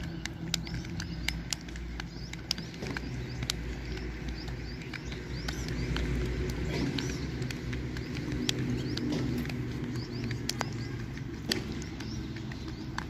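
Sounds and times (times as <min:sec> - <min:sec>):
birds chirping: 0:00.0 - 0:13.0
quick sharp clicks: 0:00.0 - 0:13.0
steady low hum: 0:00.0 - 0:13.0.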